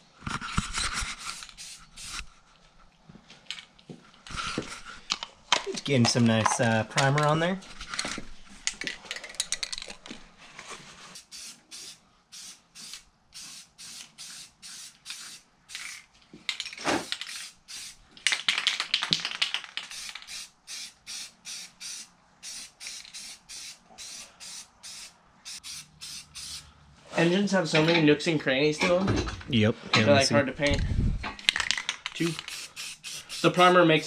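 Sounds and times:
aerosol can spraying: 1.2 - 2.3, 11.2 - 16.0, 17.0 - 18.0, 19.8 - 26.7, 32.2 - 33.7.

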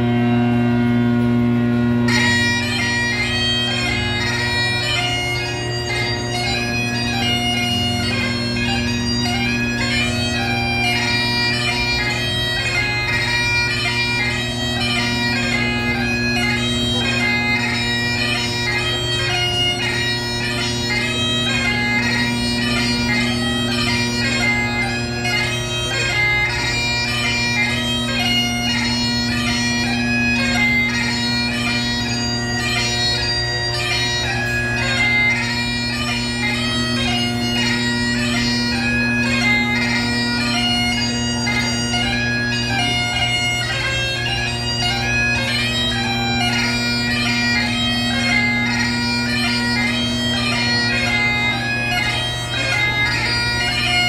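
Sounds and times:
bagpipe chanter melody: 0.0 - 54.0
bagpipe drones: 0.0 - 54.0.

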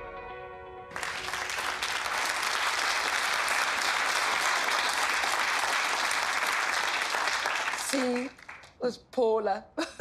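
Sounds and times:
audience applause: 0.9 - 8.8.

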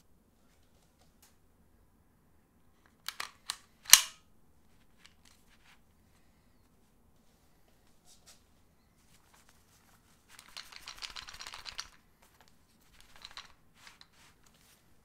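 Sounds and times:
plastic pistol holster clicks: 3.1 - 4.2.

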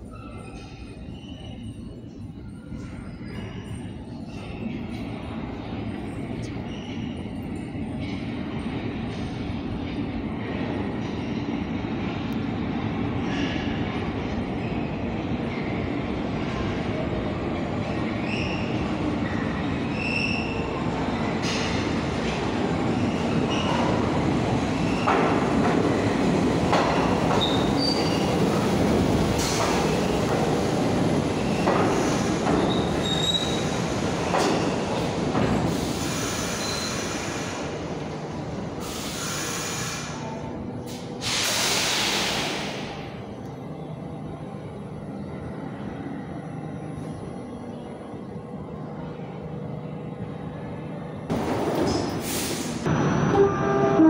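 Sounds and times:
train wheels squealing: 0.0 - 5.0, 6.4 - 7.4, 18.1 - 20.8, 23.0 - 24.0, 27.3 - 28.6, 31.4 - 35.0, 35.7 - 37.7.

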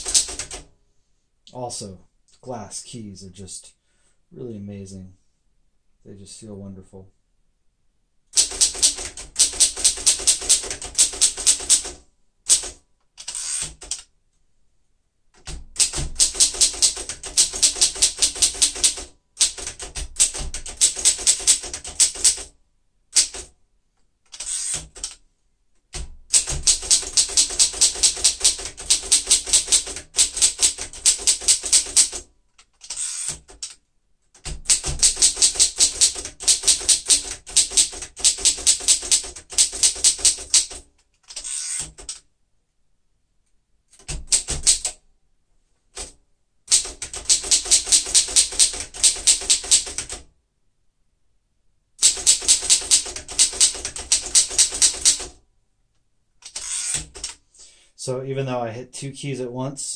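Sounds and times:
manual typewriter typing: 0.0 - 0.6, 8.3 - 14.1, 15.4 - 22.5, 23.1 - 23.5, 24.3 - 25.2, 25.9 - 42.2, 43.9 - 45.0, 46.7 - 50.2, 52.0 - 55.4, 56.4 - 57.4.

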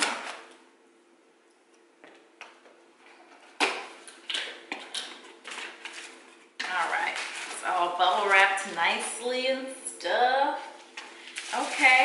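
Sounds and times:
packaging crinkling: 3.7 - 8.7, 10.9 - 12.0.

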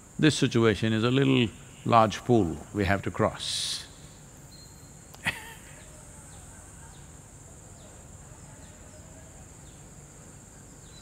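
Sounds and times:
crickets droning: 0.0 - 11.0
faint falling chirp: 4.4 - 6.0.

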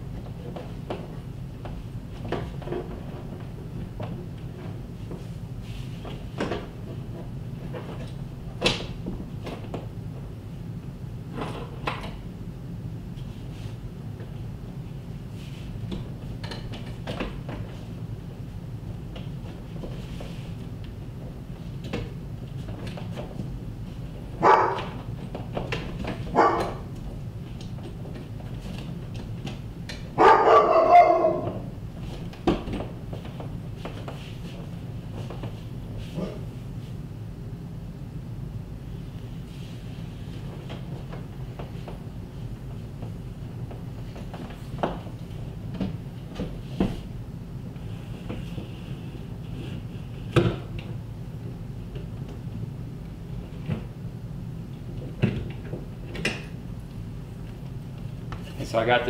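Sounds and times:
steady low hum: 0.0 - 59.0
dog barking: 24.4 - 24.9, 26.3 - 26.8, 30.2 - 31.6.

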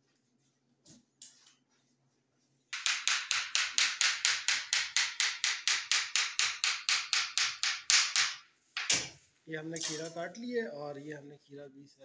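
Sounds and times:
knife chopping on plastic board: 2.8 - 9.1.

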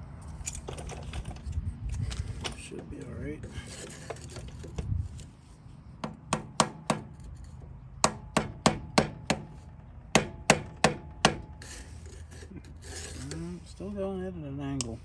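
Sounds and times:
hammer striking pipe driver: 6.0 - 7.2, 8.0 - 11.6.

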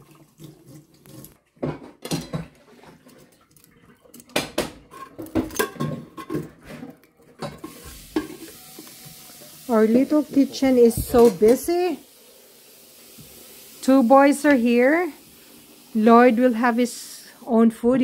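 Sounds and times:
hot basket sizzling: 7.4 - 17.7.

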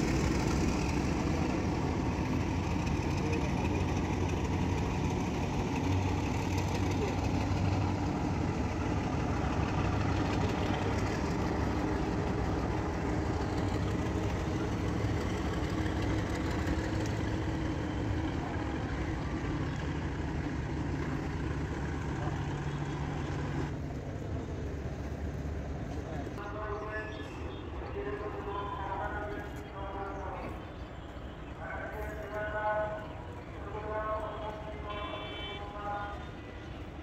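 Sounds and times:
engine idling: 0.0 - 25.1.

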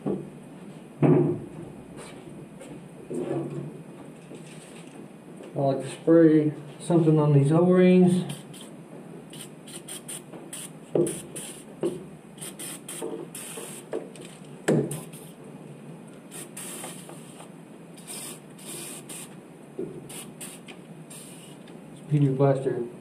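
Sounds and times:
aerosol can spraying hiss: 8.3 - 8.7, 9.3 - 11.7, 12.4 - 13.9, 14.9 - 15.4, 16.3 - 17.4, 18.0 - 19.3, 20.1 - 21.6.

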